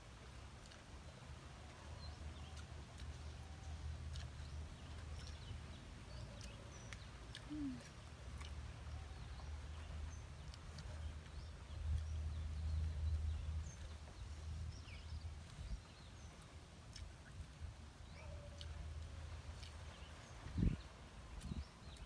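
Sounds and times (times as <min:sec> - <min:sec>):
faint bird chirps: 0:02.0 - 0:08.1.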